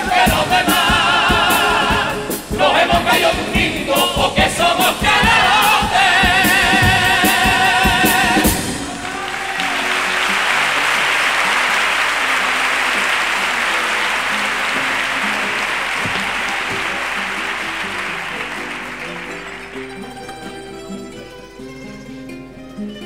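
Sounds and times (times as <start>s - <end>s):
acoustic guitars plucking: 0.0s - 23.0s
audience applauding: 8.0s - 21.1s.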